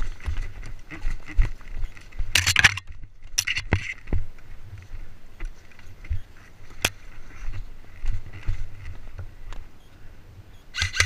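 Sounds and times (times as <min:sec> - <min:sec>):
brush and gear rustling: 0:00.0 - 0:09.7
footsteps on rocky dirt trail: 0:00.0 - 0:09.8
sharp clicks: 0:01.9 - 0:04.0, 0:10.7 - 0:11.0.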